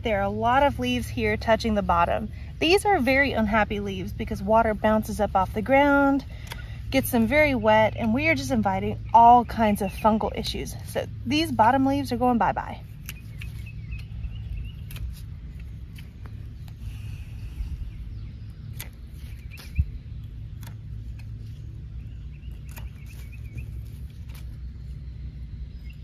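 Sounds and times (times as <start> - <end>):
steady low rumble: 0.0 - 26.0
hand pruners snipping: 5.5 - 8.4, 11.9 - 16.8, 18.7 - 19.9, 20.5 - 21.6, 22.5 - 24.6.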